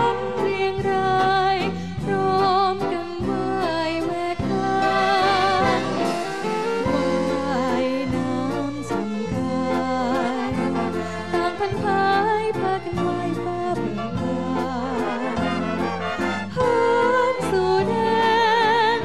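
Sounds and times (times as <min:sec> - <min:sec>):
woman singing into microphone: 0:00.0 - 0:15.6, 0:16.5 - 0:19.0
band with saxophones: 0:03.2 - 0:18.2.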